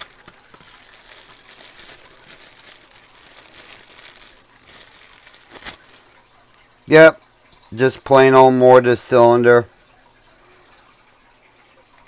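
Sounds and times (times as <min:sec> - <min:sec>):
plastic bag crinkling: 0:00.0 - 0:06.7.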